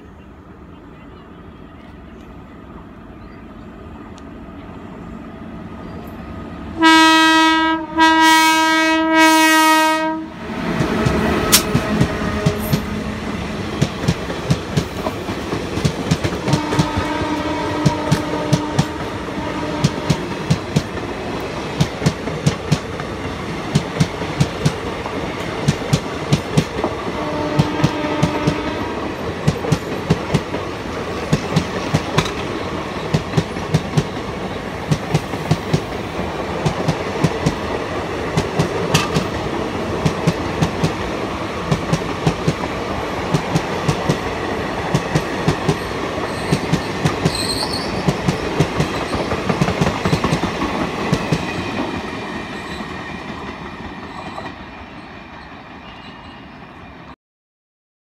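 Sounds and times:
train air horn blasts: 6.8 - 13.6, 16.4 - 20.6, 27.1 - 29.2
train wheels clattering: 10.7 - 54.6.

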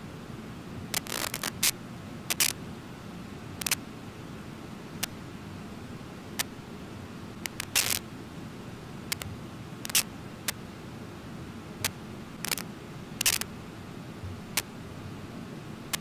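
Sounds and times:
sharp clicks: 1.0 - 2.6, 7.4 - 8.0, 9.9 - 10.6, 11.8 - 13.5.

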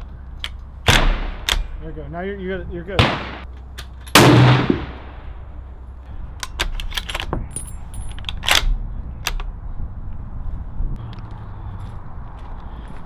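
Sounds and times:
rifle shot echoing: 0.9 - 1.8, 3.0 - 3.5, 4.1 - 5.4.

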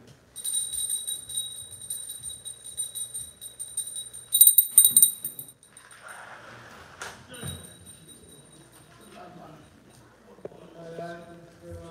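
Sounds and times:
hand bell ringing rapidly: 0.4 - 5.5.

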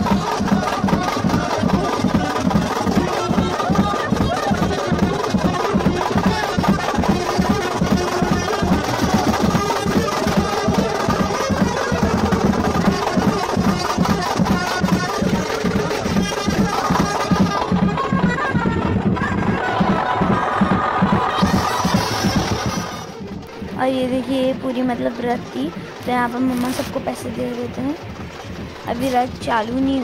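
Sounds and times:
brass band with saxophone: 0.0 - 23.7
driving drumbeat: 0.0 - 30.0.

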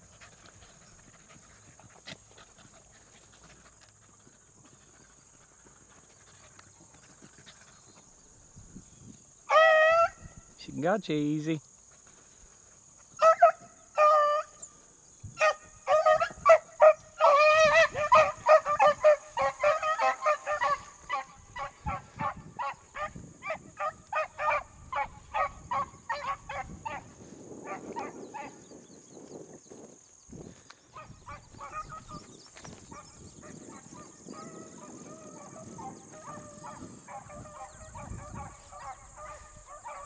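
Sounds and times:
hounds baying: 9.4 - 10.3, 13.0 - 28.7, 30.9 - 40.0.

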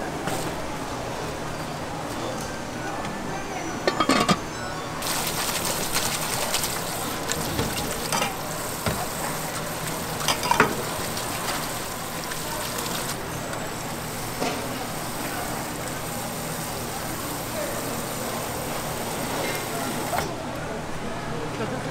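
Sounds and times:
faucet water stream: 5.0 - 20.3.

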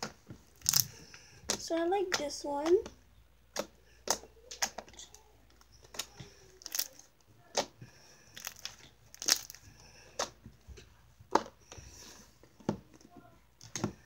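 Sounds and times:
slime popping and clicking: 0.6 - 0.9, 6.0 - 7.7, 8.4 - 9.6.

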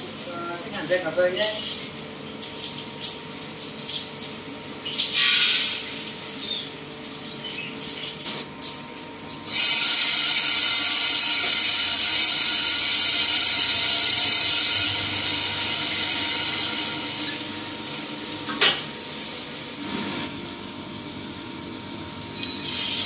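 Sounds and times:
coffee beans pouring into drum: 9.5 - 18.4.

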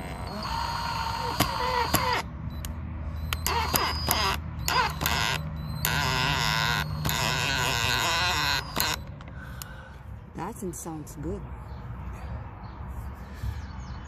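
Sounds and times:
cordless drill driving screw: 0.0 - 2.3, 3.3 - 9.1.

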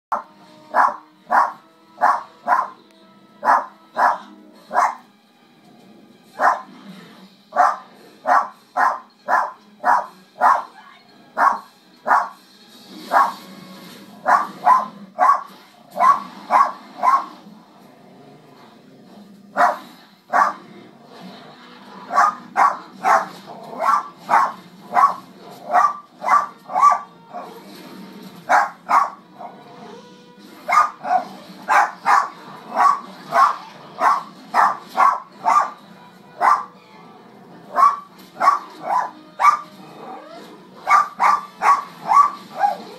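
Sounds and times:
small dog barking: 0.1 - 2.8, 3.4 - 5.0, 6.4 - 6.7, 7.6 - 10.8, 11.4 - 12.4, 13.1 - 13.4, 14.2 - 17.4, 19.6 - 20.6, 22.1 - 27.5, 28.5 - 29.6, 30.7 - 35.8, 36.4 - 36.8, 37.7 - 39.7, 40.9 - 42.9
quiet film soundtrack music: 0.1 - 42.9.

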